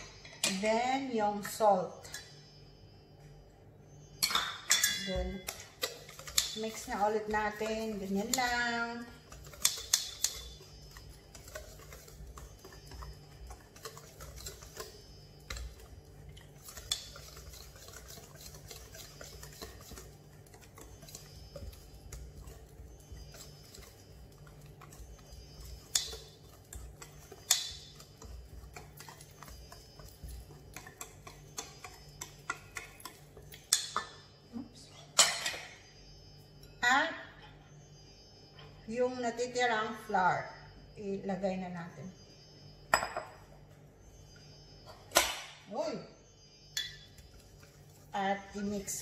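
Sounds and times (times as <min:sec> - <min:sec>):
whisk scraping metal bowl: 0:04.9 - 0:33.9.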